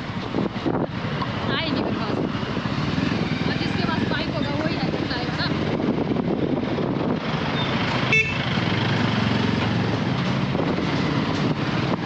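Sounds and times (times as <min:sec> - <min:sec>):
motorcycle engine and road noise: 0:00.0 - 0:12.0
short horn beep: 0:08.1 - 0:08.4.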